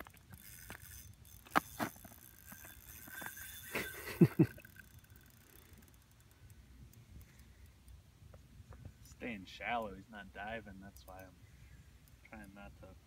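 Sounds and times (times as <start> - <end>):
fishing reel whine: 0.0 - 8.0.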